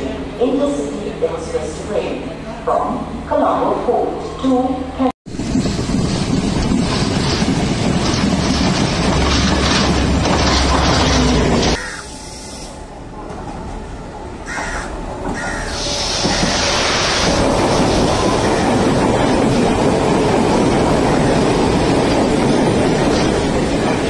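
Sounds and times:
train wheels rumbling on rails: 0:05.2 - 0:24.0.

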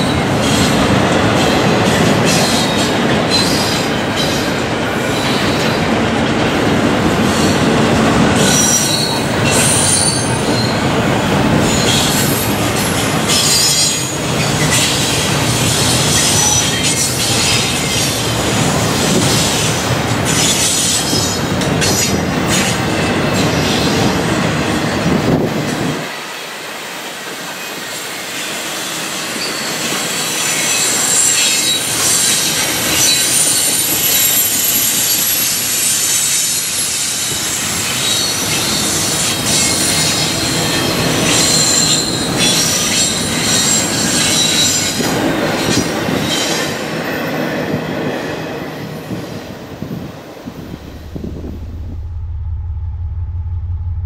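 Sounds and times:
deep train rumble: 0:00.0 - 0:26.1, 0:47.6 - 0:54.0
train wheels squealing on rails: 0:00.0 - 0:50.6.

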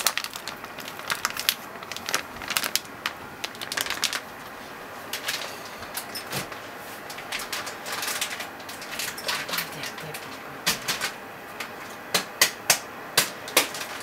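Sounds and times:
plastic bag crinkling: 0:00.0 - 0:06.1, 0:07.0 - 0:11.2.

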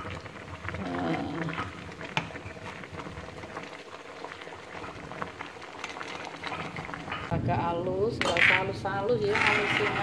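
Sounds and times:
water boiling in a pot: 0:00.0 - 0:10.0.

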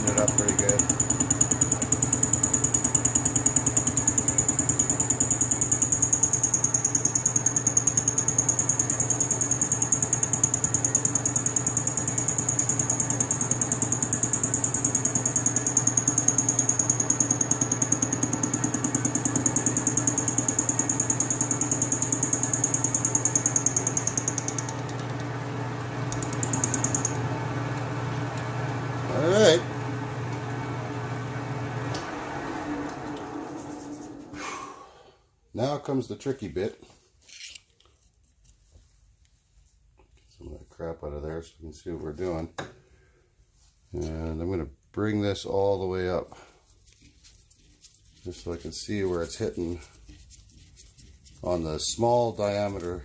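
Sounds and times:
metal lathe machine hum: 0:00.0 - 0:34.2.

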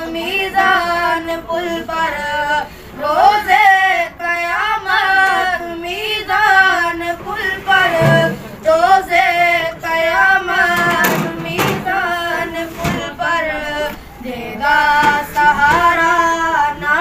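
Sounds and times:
person singing devotional song: 0:00.0 - 0:17.0
low thumps: 0:07.2 - 0:08.8.

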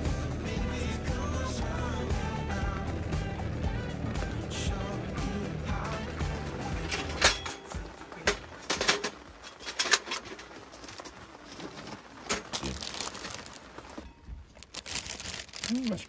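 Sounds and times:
kitchenware clicks and knocks: 0:06.9 - 0:10.5
food packaging crinkling: 0:07.6 - 0:16.0.

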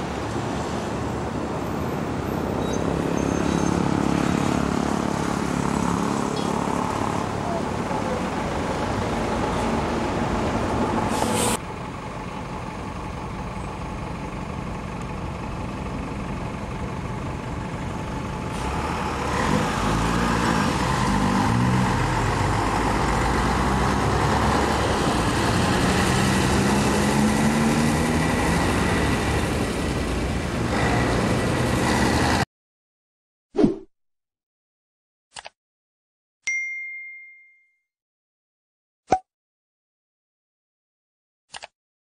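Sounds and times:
bus driving past: 0:00.0 - 0:32.4
road traffic: 0:00.0 - 0:32.5.

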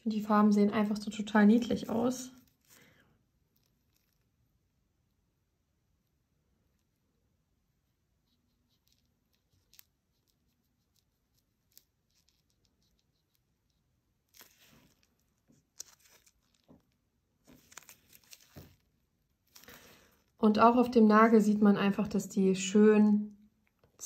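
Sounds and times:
gloved hands rustling and clicking: 0:02.4 - 0:04.4, 0:08.4 - 0:20.4.

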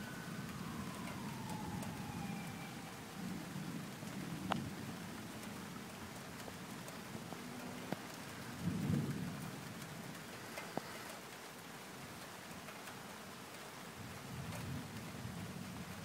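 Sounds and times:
rain hissing: 0:00.0 - 0:16.0
distant thunder rumble: 0:00.4 - 0:05.1.

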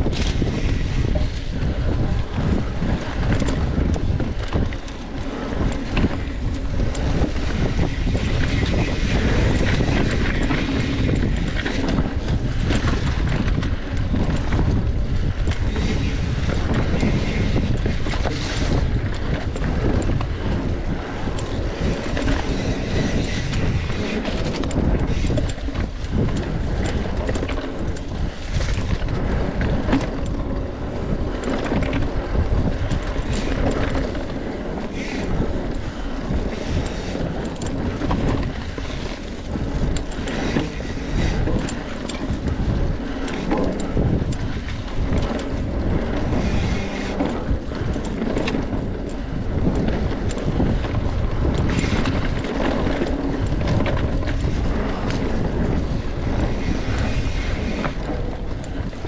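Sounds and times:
bike rumbling and rattling on dirt: 0:00.0 - 0:59.0
wind buffeting microphone: 0:00.0 - 0:59.0.

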